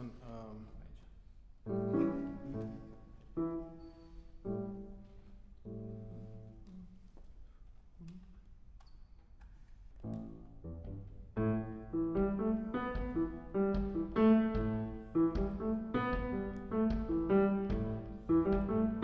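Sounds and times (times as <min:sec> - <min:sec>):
piano chords: 0:01.7 - 0:07.1, 0:10.0 - 0:19.0.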